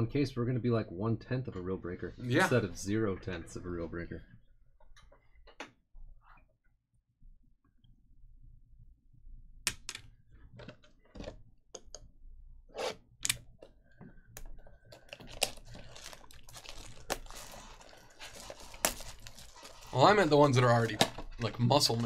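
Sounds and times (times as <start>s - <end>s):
plastic shrink wrap crinkling: 14.8s - 22.0s.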